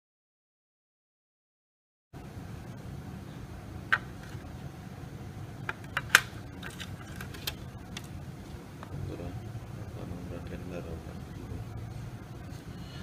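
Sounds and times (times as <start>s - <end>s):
low steady hum: 2.2s - 13.0s.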